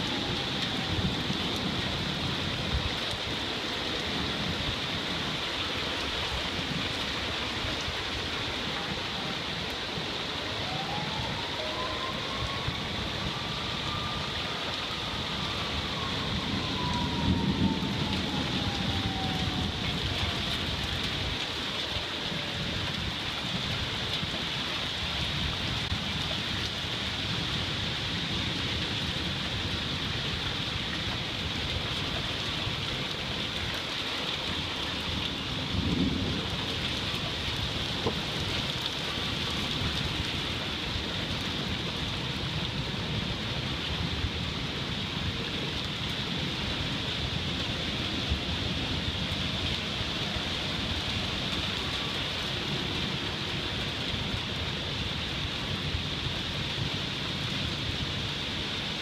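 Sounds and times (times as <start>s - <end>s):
steady rain falling: 0.0s - 59.0s
low rumbles of thunder: 10.6s - 24.0s, 35.2s - 53.0s.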